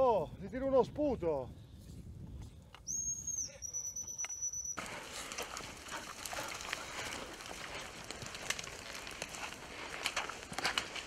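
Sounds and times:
dog whistle blasts: 2.9 - 4.8
footsteps through heather: 4.8 - 11.0.

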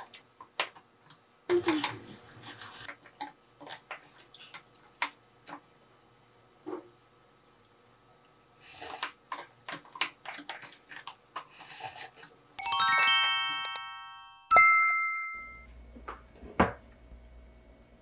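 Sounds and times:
bright two-tone ding: 12.6 - 15.7
rising run of ringing notes: 12.6 - 15.7.

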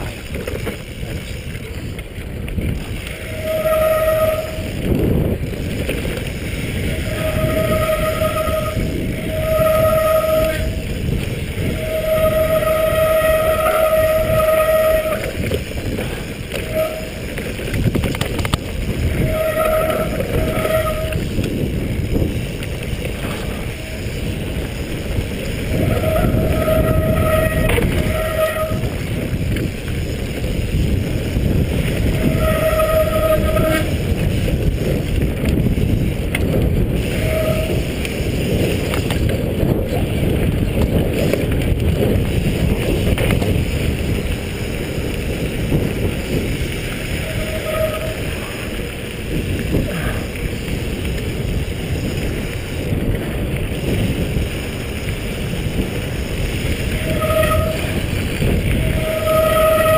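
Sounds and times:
bike tyre rumble on trail: 0.0 - 59.9
wind buffeting microphone: 0.0 - 59.9
disc brakes squealing: 3.2 - 4.8, 6.8 - 10.9, 11.6 - 17.6, 18.8 - 21.4, 25.7 - 29.3, 32.0 - 34.1, 47.1 - 48.8, 58.8 - 59.9.

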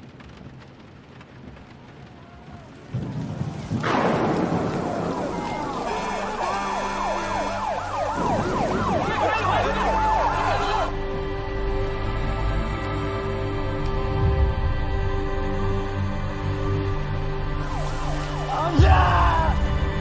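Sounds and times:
emergency sirens wailing: 1.9 - 13.6, 17.1 - 20.0.

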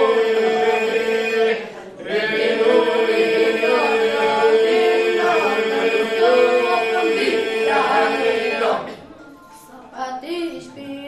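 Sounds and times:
held vocal drone: 0.0 - 9.0
boys singing polyphonic folk song: 0.0 - 9.2.

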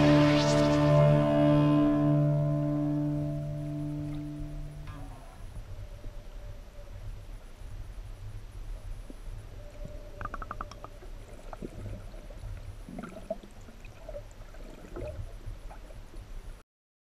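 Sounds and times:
underwater rumble of moving water: 0.0 - 16.6
water gurgling: 8.4 - 16.6
bubbly clicks: 10.2 - 16.0.

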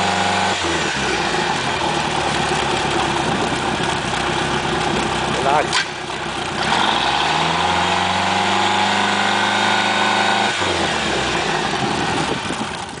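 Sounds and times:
boat engine idling: 1.0 - 7.6, 11.1 - 13.0.

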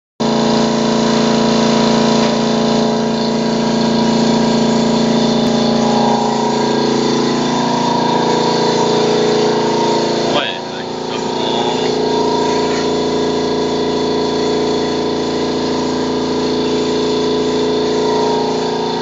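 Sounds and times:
air compressor humming: 0.2 - 19.0
paint spray gun hissing: 0.3 - 19.0.

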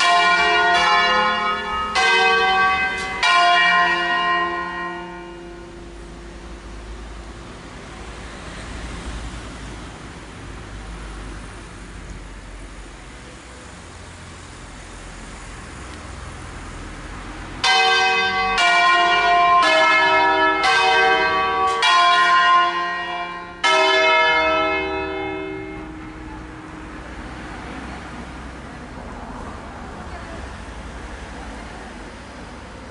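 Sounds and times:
church bells striking: 0.0 - 7.3, 17.6 - 28.5.

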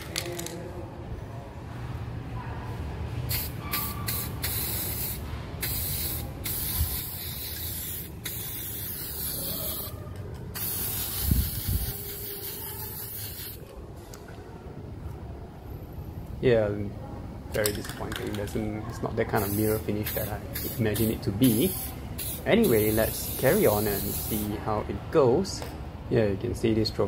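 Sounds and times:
spray can hissing: 3.3 - 13.6, 19.4 - 24.6.

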